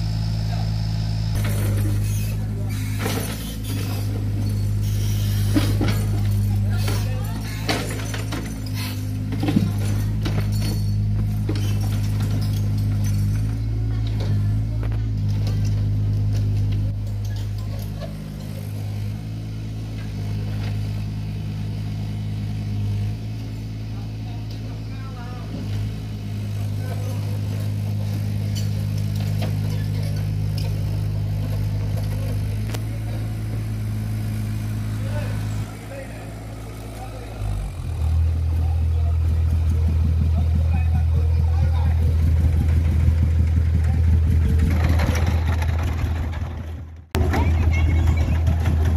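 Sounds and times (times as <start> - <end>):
excavator diesel engine running: 0.0 - 48.9
metallic clanks: 1.4 - 18.7.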